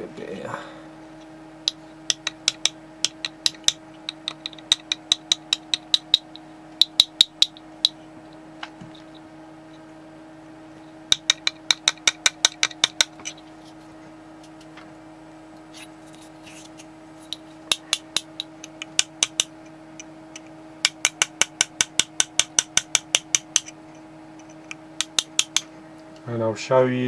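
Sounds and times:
steady hum: 0.0 - 27.0
rapid hammer taps: 1.6 - 8.0, 11.1 - 13.4, 17.3 - 23.8, 24.4 - 25.7.

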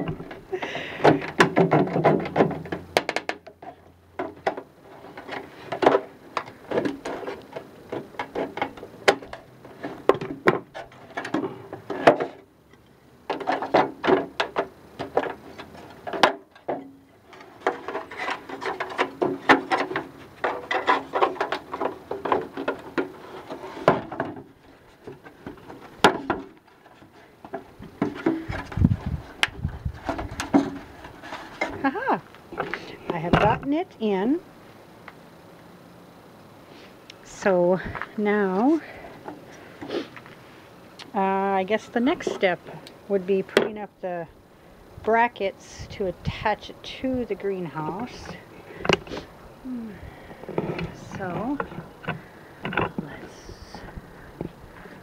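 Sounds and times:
metal knocks and rattles: 1.1 - 12.4.

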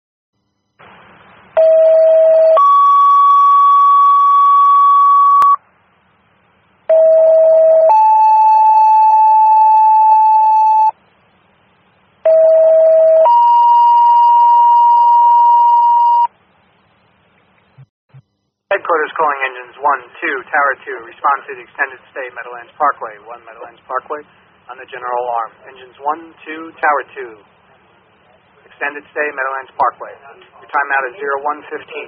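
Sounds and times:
two-tone radio paging tones: 12.2 - 16.3.

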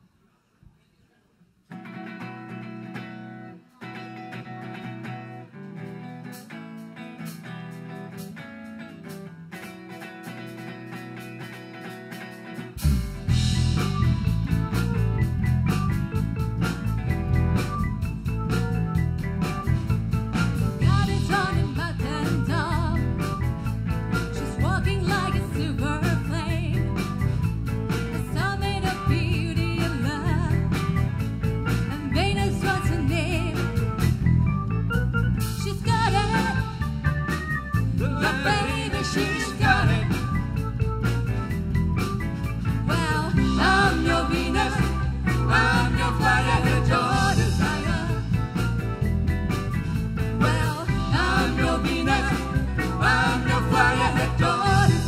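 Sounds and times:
live band playing: 1.8 - 55.0
woman singing: 20.8 - 23.2, 24.4 - 26.8, 28.2 - 30.8, 31.9 - 33.8, 35.6 - 36.7, 38.0 - 40.2, 42.9 - 48.3, 50.4 - 52.6.

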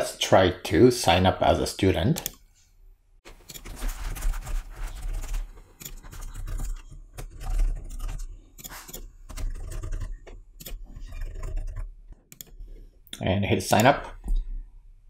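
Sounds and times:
computer keyboard typing: 5.0 - 12.6.

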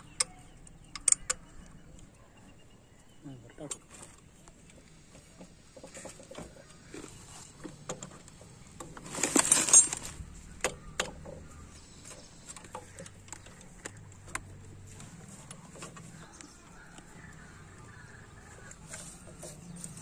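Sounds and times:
rattling clatter: 5.7 - 10.3
metal tools clinking on engine: 7.7 - 10.3.

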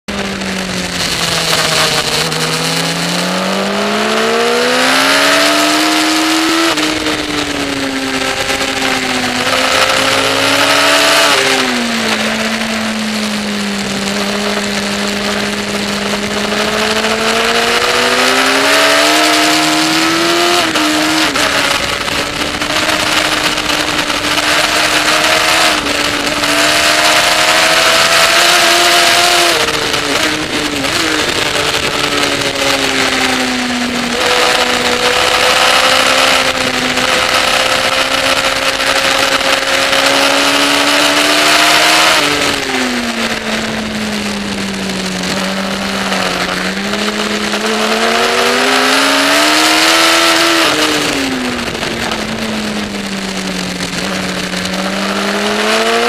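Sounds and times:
motorcycle engine revving: 0.1 - 56.0.

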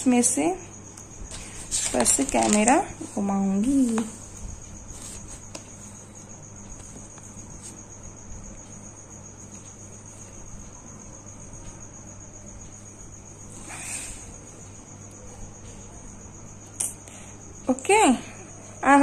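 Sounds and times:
cricket trilling: 0.0 - 19.0
low steady hum: 0.0 - 19.0.

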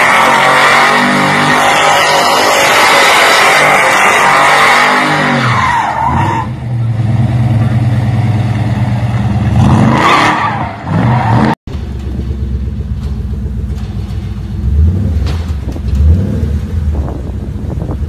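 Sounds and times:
engine revving hard: 9.4 - 11.6.

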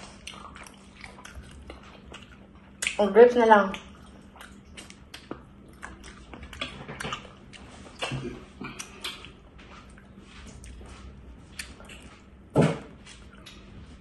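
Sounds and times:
lip smacks: 0.0 - 3.0, 3.7 - 9.4, 11.5 - 12.2
person chewing food: 0.0 - 3.0, 3.7 - 14.0.

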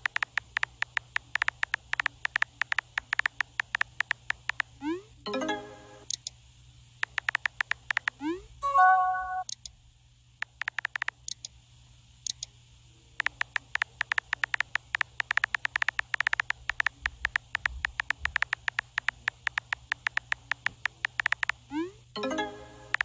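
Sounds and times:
phone keyboard typing clicks: 0.0 - 4.8, 7.0 - 8.3, 10.4 - 11.5, 13.2 - 21.6.

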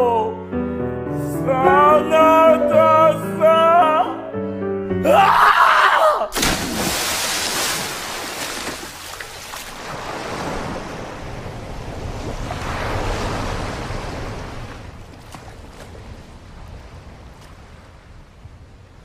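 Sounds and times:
ocean waves washing in: 6.4 - 19.0.

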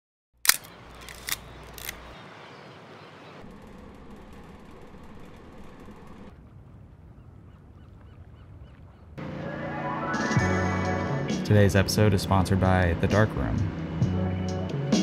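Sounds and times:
film camera clicks: 0.4 - 2.2.

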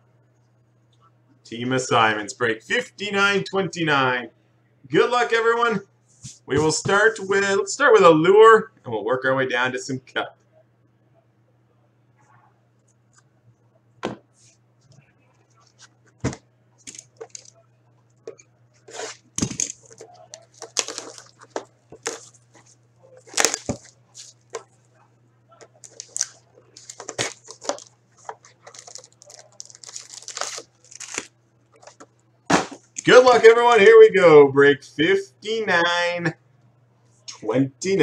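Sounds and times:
plastic wrap tearing and crinkling: 16.9 - 17.5, 18.8 - 24.7, 25.6 - 32.1.

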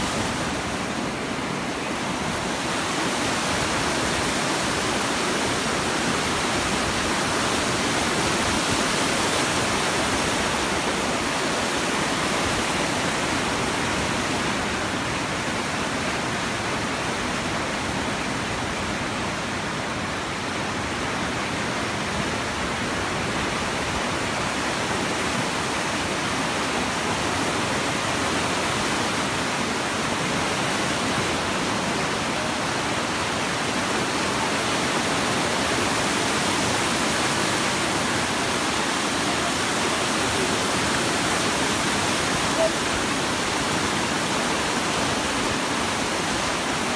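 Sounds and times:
river water rushing: 0.0 - 46.9.

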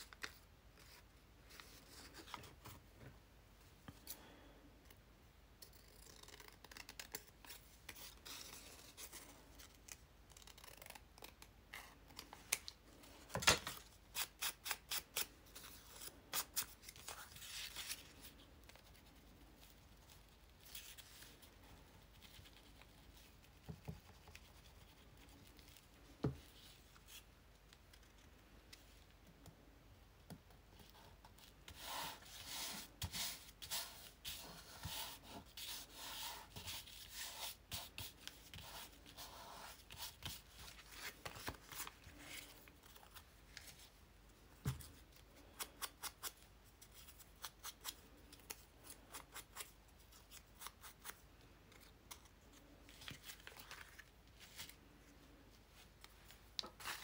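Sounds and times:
paper rustling: 39.9 - 43.9.

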